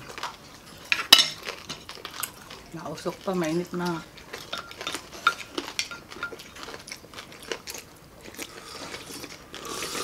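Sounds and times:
chewing: 0.0s - 10.0s
slurping: 8.4s - 10.0s.

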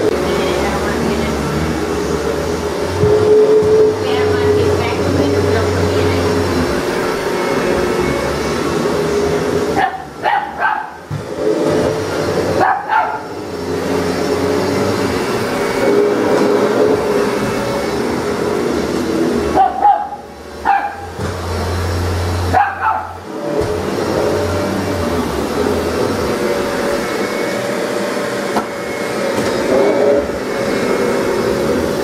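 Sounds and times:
vacuum cleaner running: 0.0s - 32.0s
puppy barking and yipping: 9.8s - 11.0s, 12.6s - 13.3s, 19.5s - 21.1s, 22.5s - 23.2s.

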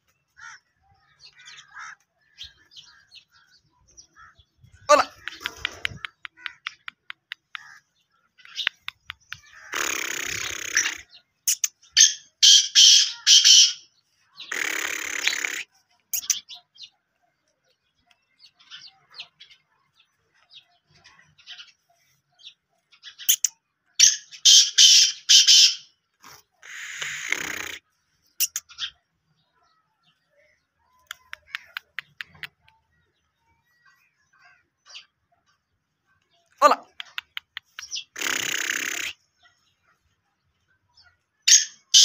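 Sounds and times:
faint small-bird chirps: 2.2s - 25.6s, 26.2s - 40.0s
bird grating calls: 4.2s - 16.6s, 23.2s - 29.0s, 36.6s - 39.6s, 41.5s - 42.0s.

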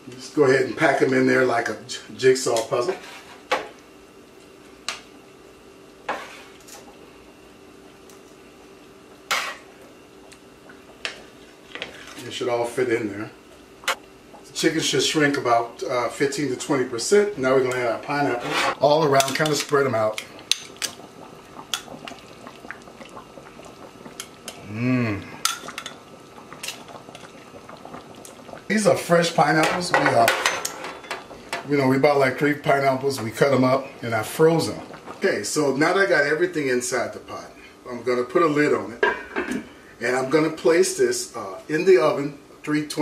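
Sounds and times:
faint steady hum: 0.0s - 43.0s
man humming: 24.6s - 25.4s.

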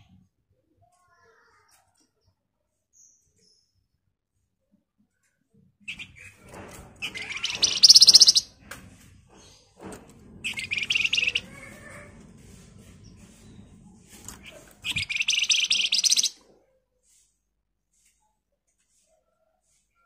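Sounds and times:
bird rattling trills: 5.9s - 8.6s, 10.4s - 16.4s.

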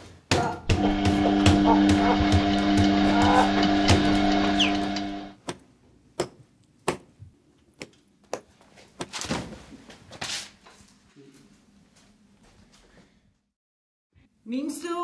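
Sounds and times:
body falling to the floor: 9.1s - 9.7s.

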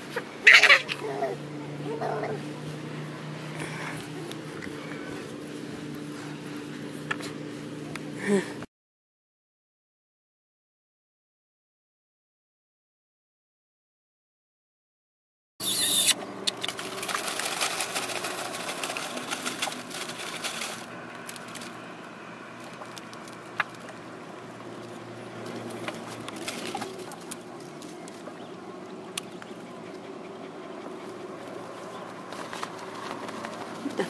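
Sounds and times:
rustling: 15.8s - 21.8s.

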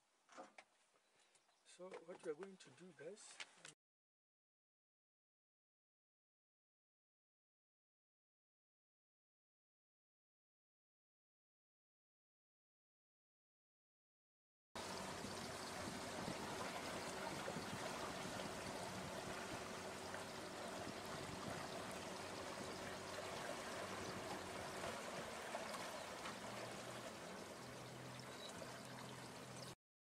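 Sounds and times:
running water rushing: 14.8s - 29.8s.

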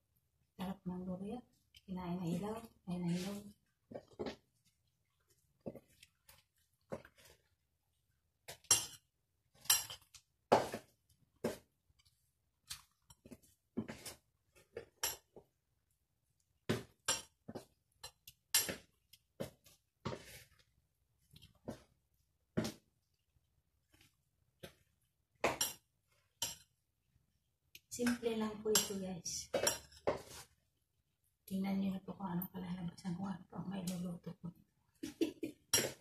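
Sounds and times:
spoon scraping a metal bowl: 28.7s - 30.6s.

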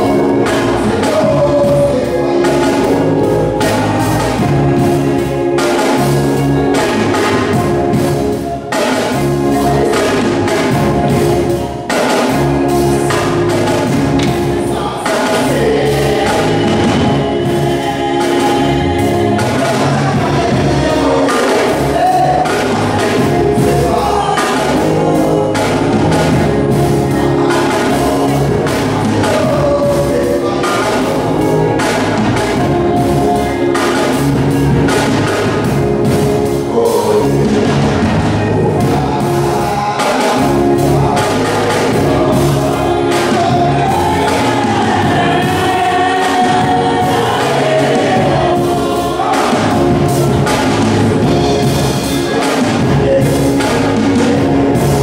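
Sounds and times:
man singing into microphone: 0.0s - 34.4s, 35.0s - 55.0s
backing vocals: 0.0s - 55.0s
band playing steady beat: 0.0s - 55.0s.

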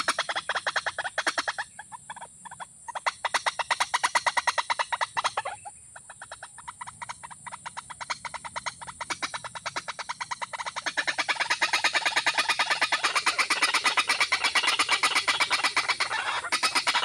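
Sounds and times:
bird calling sharp notes: 7.0s - 17.0s.

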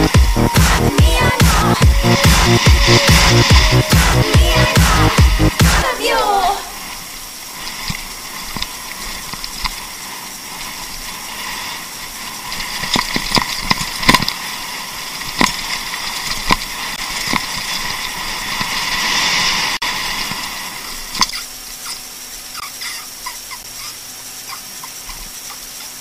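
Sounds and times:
bike knocking and rattling on rocks: 7.8s - 11.1s, 11.8s - 18.8s.

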